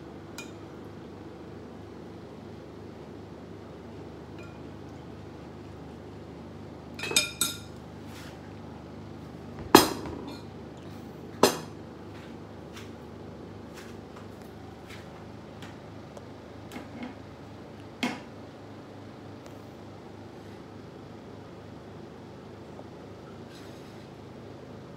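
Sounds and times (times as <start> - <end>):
faint steady hum: 0.0 - 24.9
cutlery clinking on ceramic plates: 7.0 - 7.7.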